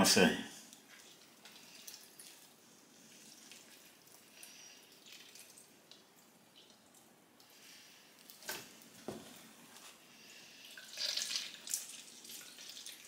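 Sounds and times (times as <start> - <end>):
water dripping: 0.7 - 7.5, 10.5 - 13.0
squelches of squeezed bread: 10.4 - 13.0.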